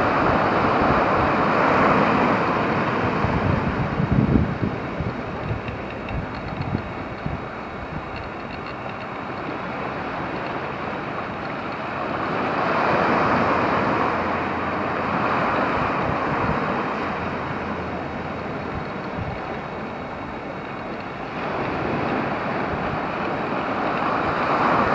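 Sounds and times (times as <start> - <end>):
surf washing onto beach: 0.0 - 24.9.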